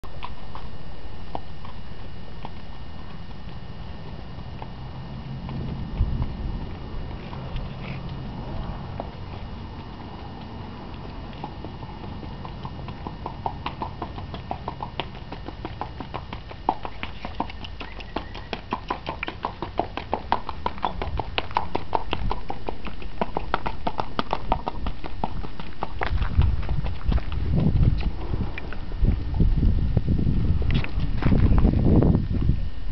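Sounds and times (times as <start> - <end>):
hoofbeats on dirt: 0.1 - 32.5
low rumble: 1.9 - 16.8, 26.0 - 32.9.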